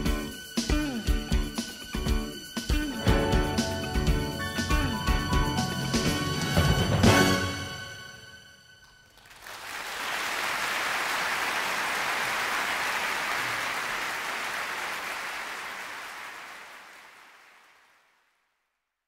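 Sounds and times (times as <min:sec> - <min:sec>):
audience applause: 0:09.0 - 0:18.2.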